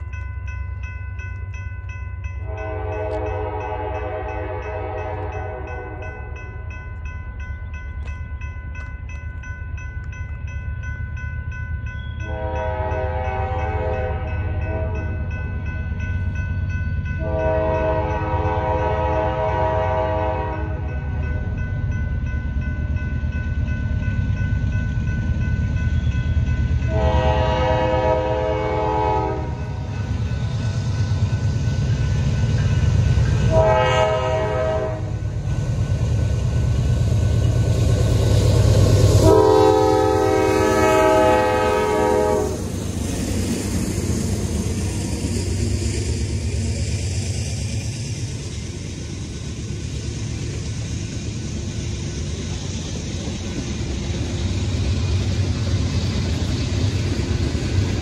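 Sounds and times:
low rumble of locomotives: 0.0 - 58.0
locomotive air horn blasts: 2.5 - 6.0, 12.3 - 15.2, 17.2 - 21.2, 26.9 - 29.6, 33.5 - 35.2, 39.2 - 42.6.

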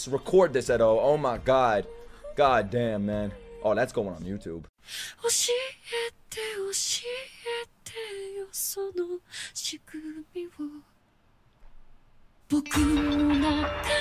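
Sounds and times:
woman singing softly: 5.1 - 10.9, 12.5 - 14.0.

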